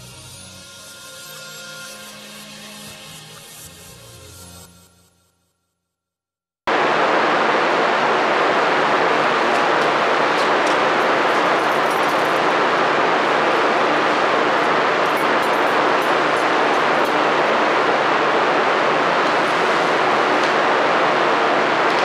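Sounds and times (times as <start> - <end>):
loud static hiss: 6.7 - 22.0.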